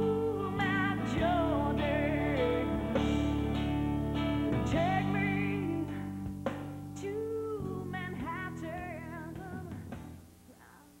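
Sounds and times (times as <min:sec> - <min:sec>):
person singing long notes: 0:00.0 - 0:03.4, 0:04.6 - 0:06.1
sustained instrumental backing: 0:00.0 - 0:07.0.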